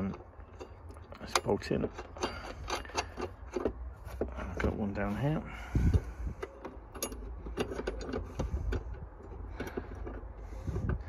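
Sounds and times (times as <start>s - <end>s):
metallic clicks of bolt turning: 0.0s - 3.8s, 6.4s - 10.3s
low steady rumble: 0.0s - 11.0s.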